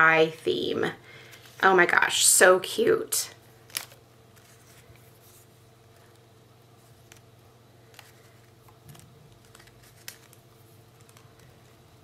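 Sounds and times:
low steady hum: 0:00.0 - 0:12.0
cardstock pieces rustling: 0:03.7 - 0:06.2, 0:06.8 - 0:11.8.

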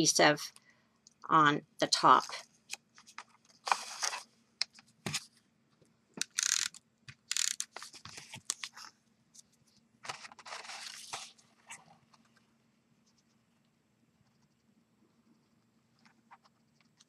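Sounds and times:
paper and card handling: 0:03.0 - 0:04.3, 0:06.2 - 0:08.9, 0:10.0 - 0:11.9
small clicks: 0:06.2 - 0:07.8.

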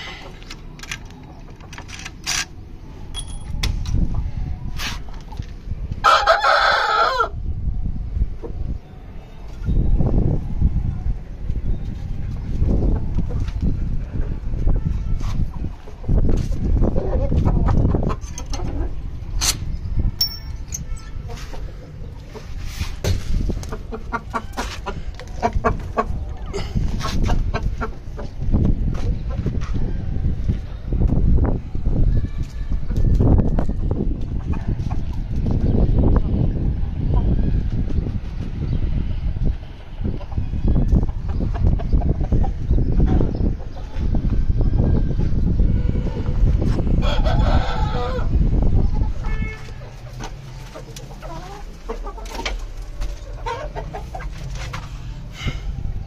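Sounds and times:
rooster crowing: 0:06.0 - 0:07.4, 0:47.0 - 0:48.4
chickens clucking: 0:11.5 - 0:19.7, 0:21.1 - 0:31.2, 0:31.8 - 0:56.0
rooster clucking: 0:23.6 - 0:28.4, 0:49.1 - 0:55.5.

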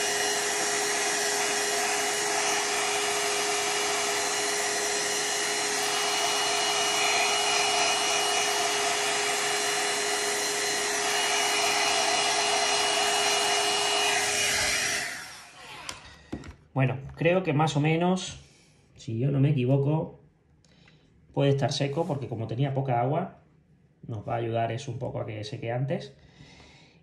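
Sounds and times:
hair dryer blowing: 0:00.0 - 0:16.4.

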